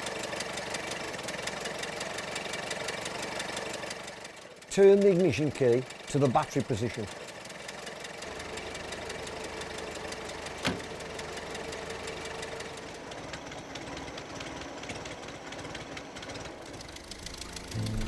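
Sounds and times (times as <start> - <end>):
car door shutting: 10.6 - 10.9
mechanical ticking and buzzing: 14.2 - 18.0.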